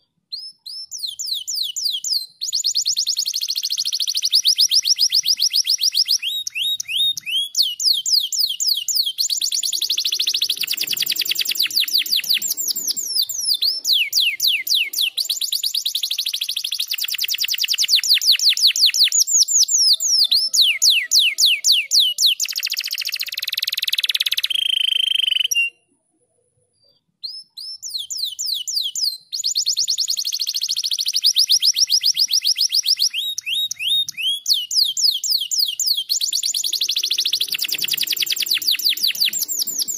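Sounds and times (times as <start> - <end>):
canary singing trills: 0.3 - 25.9, 26.8 - 39.9.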